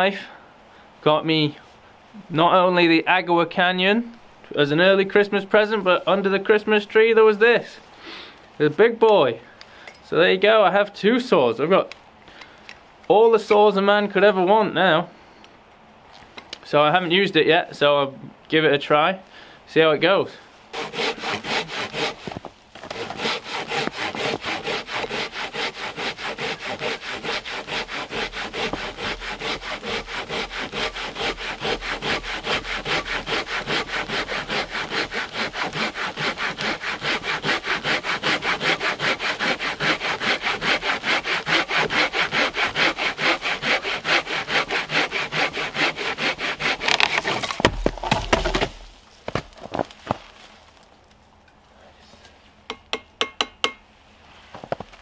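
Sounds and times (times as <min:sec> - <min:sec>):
hand saw cutting wood: 0:20.7 - 0:48.8
wood cracking and thumping: 0:46.8 - 0:50.8.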